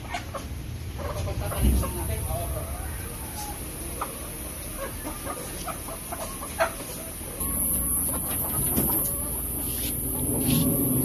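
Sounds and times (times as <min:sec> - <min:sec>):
background noise: 0:00.0 - 0:11.0
hens clucking: 0:00.0 - 0:11.0.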